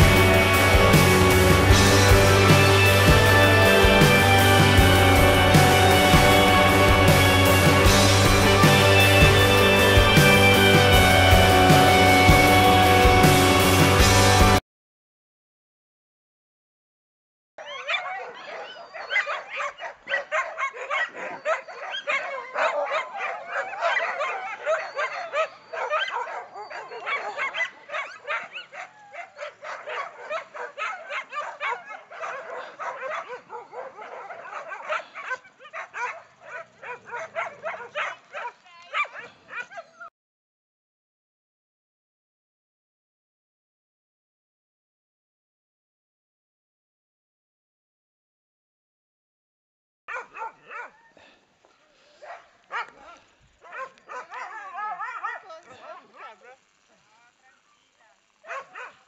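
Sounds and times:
dogs barking and yelping: 17.6s - 40.1s, 50.1s - 51.4s, 52.2s - 56.9s, 57.9s - 59.0s.

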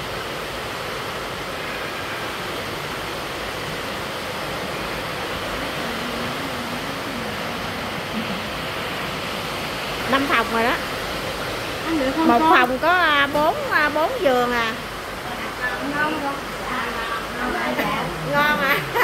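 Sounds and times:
rushing background noise: 0.0s - 19.0s
faint voice speaking: 5.6s - 8.6s.

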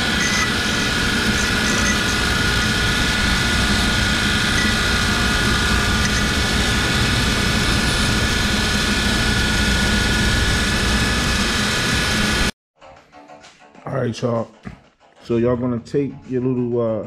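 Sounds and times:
machine drone with whine: 0.0s - 12.5s.

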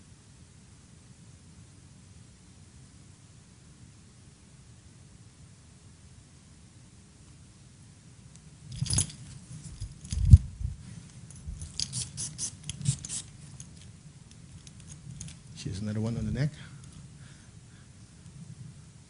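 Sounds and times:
handling rustles and clicks: 8.4s - 15.9s
clicks and scrapes: 11.6s - 13.7s.

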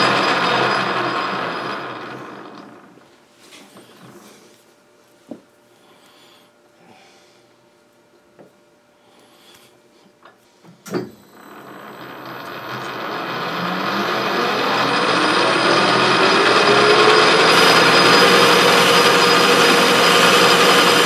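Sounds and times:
lathe motor high whine: 0.0s - 2.9s, 11.2s - 21.0s.

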